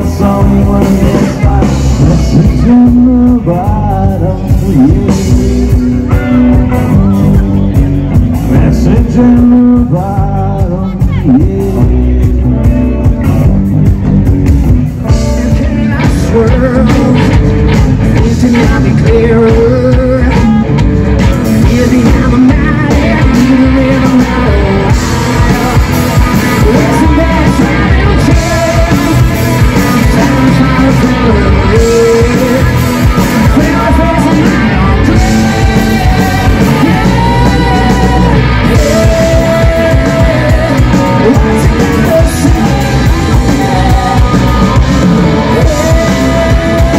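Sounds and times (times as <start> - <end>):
man singing: 0.0 - 13.5, 14.8 - 46.9
bass guitar: 0.0 - 46.9
drum kit: 0.0 - 46.9
electric guitar: 0.0 - 46.9.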